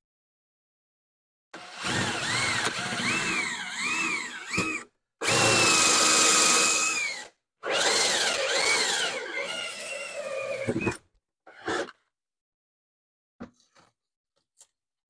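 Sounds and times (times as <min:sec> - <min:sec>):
cordless drill whining: 0:01.6 - 0:11.0.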